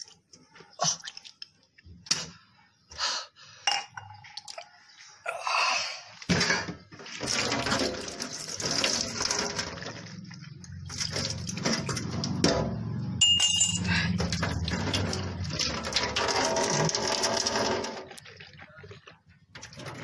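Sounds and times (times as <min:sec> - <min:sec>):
water running and splashing: 0:07.0 - 0:12.4, 0:14.2 - 0:18.6.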